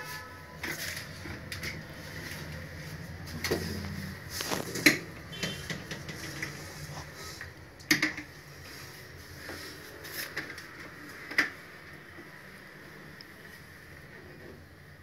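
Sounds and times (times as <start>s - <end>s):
sharp knocks and clicks: 4.7s - 6.6s.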